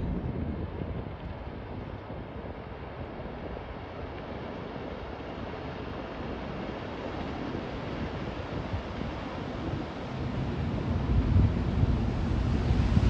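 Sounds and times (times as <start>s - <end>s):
wind on microphone: 0.0s - 13.0s
boat engines and wake rushing: 0.7s - 13.0s.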